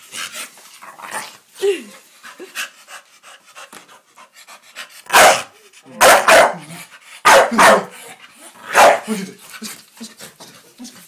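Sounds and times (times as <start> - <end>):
dogs panting: 2.2 - 5.9
dogs barking: 5.1 - 6.6, 7.2 - 8.0, 8.7 - 9.1.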